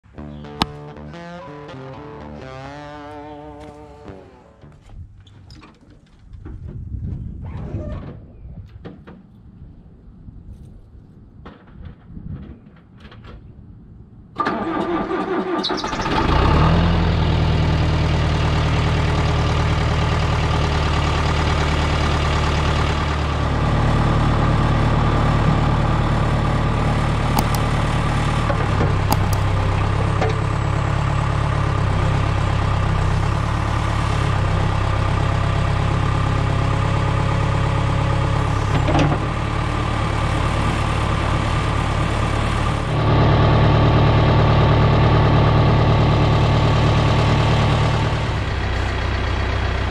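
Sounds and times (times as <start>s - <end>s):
diesel engine idling: 15.4s - 49.9s.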